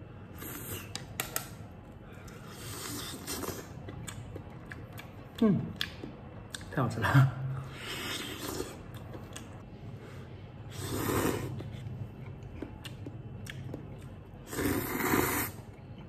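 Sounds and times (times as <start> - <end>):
person slurping noodles: 7.7 - 8.8, 10.7 - 11.8, 14.4 - 15.6.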